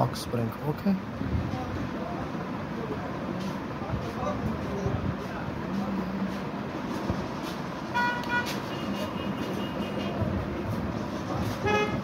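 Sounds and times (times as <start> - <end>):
street traffic: 0.0 - 12.0
vehicle horn toots: 7.9 - 10.2, 11.6 - 12.0.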